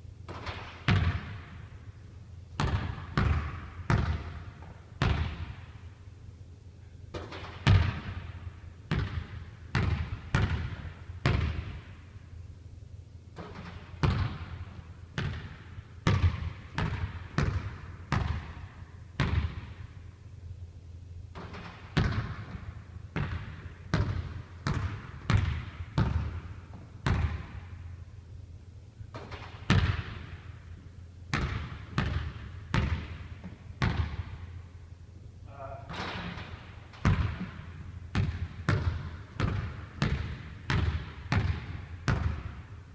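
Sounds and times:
basketball bouncing on wooden floor: 0.3s - 1.6s, 2.6s - 5.6s, 7.1s - 8.2s, 8.9s - 11.9s, 13.4s - 19.8s, 21.3s - 27.7s, 29.1s - 30.4s, 31.3s - 34.5s, 36.0s - 42.7s.

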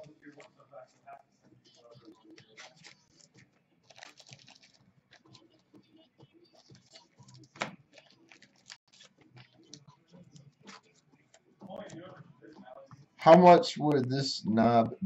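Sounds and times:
wrapper crinkling: 2.4s - 5.4s, 6.6s - 9.8s.

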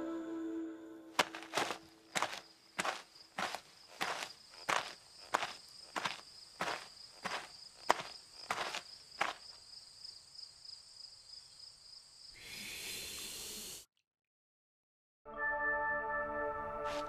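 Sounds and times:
single footstep: 1.2s - 9.5s
cartoon hiss: 12.4s - 13.9s.

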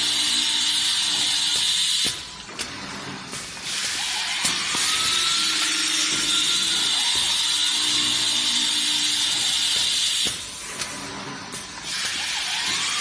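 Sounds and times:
glass drilling machine hiss: 0.0s - 2.4s, 3.6s - 10.6s.

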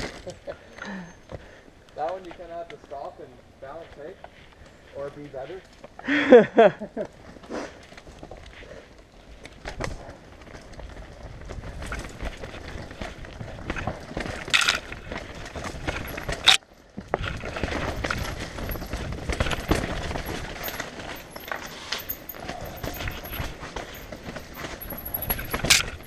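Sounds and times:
bike rattling and clattering: 0.0s - 26.0s
bike tyres rolling over dirt: 0.0s - 26.0s.

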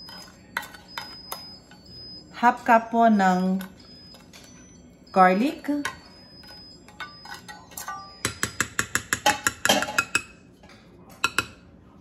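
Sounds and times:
spatula clinking on glass: 5.8s - 10.4s.

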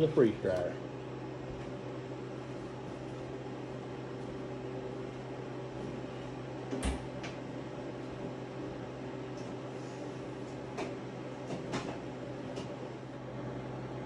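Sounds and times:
electrical appliance hum: 0.0s - 14.0s.

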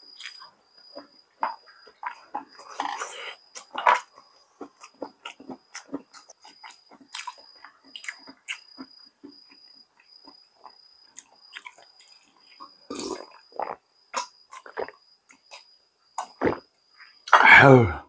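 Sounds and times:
person chewing: 0.1s - 1.1s, 1.9s - 16.6s.

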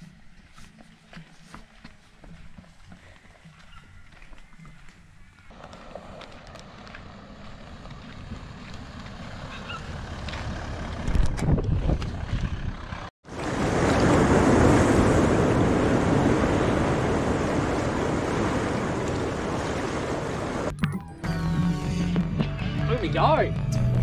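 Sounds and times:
tyres on dirt track: 0.0s - 24.0s
wind: 0.0s - 24.0s
off-road vehicle engine approaching: 2.8s - 13.1s
surf rushing: 13.3s - 20.7s.

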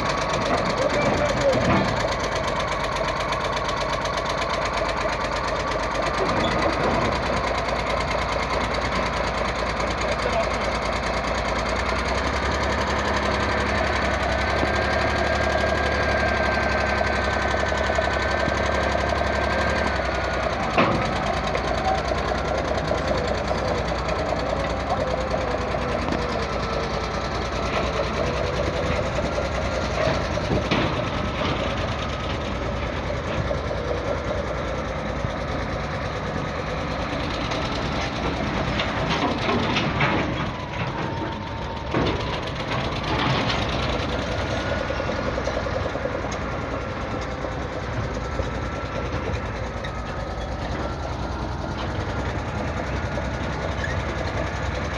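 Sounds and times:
bulldozer diesel engine running: 0.0s - 54.9s
metal clanks and knocks: 0.2s - 2.4s, 19.5s - 34.0s, 37.9s - 47.3s.

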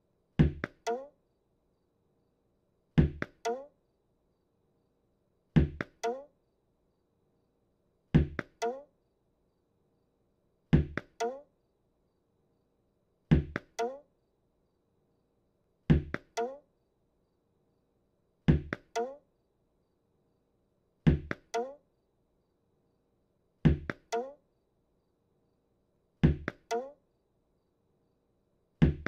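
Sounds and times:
cartoon ball thumps against wall: 0.4s - 1.0s, 3.0s - 3.6s, 5.6s - 6.2s, 8.2s - 8.5s, 10.8s - 11.4s, 15.9s - 16.3s, 23.7s - 24.3s, 26.2s - 26.9s.

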